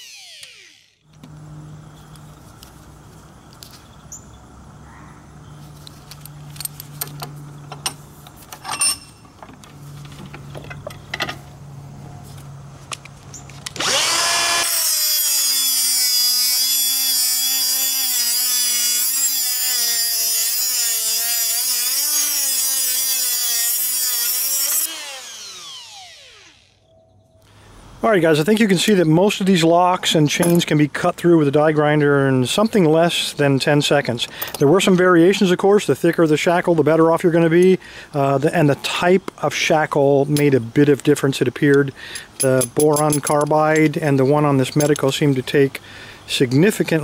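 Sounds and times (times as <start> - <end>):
grinder cutting metal screeching: 0.0 - 1.0, 13.8 - 26.8.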